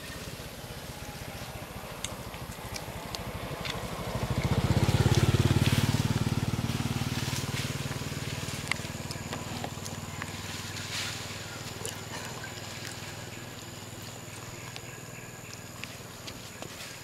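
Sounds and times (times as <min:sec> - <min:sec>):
motorcycle engine passing: 0:00.0 - 0:16.9.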